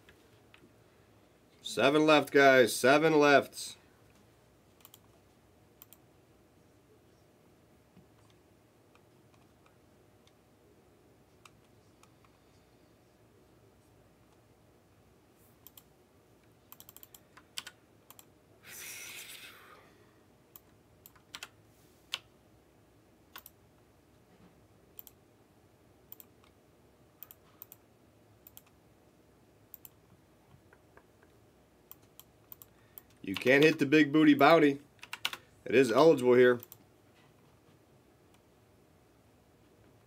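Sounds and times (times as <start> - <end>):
computer keyboard typing: 4.8 - 5.1, 16.7 - 18.3, 20.6 - 22.3, 23.3 - 23.6, 28.4 - 28.8, 31.9 - 33.8, 35.0 - 35.4.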